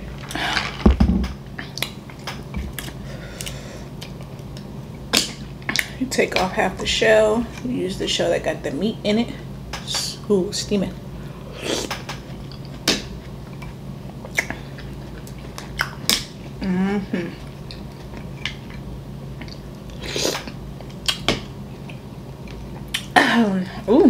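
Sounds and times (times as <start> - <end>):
steady low hum: 0.0 - 24.0
chewing and mouth sounds: 1.6 - 6.0, 11.8 - 16.6, 17.3 - 23.2.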